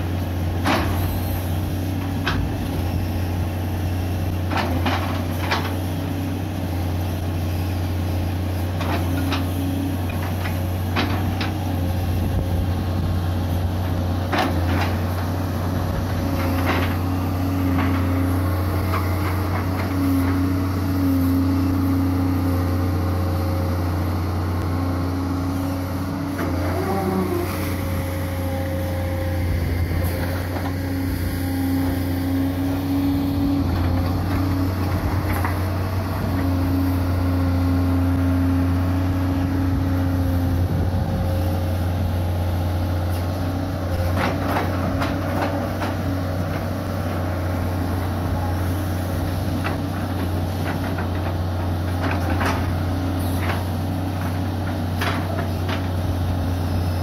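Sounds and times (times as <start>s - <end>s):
excavator diesel hum: 0.0s - 57.0s
hydraulic whine: 25.4s - 45.2s.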